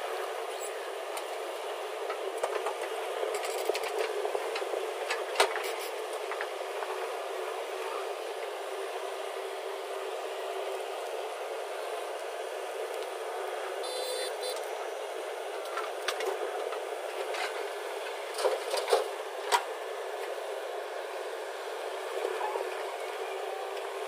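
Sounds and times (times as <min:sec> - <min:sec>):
backhoe loader running: 0:00.0 - 0:24.0.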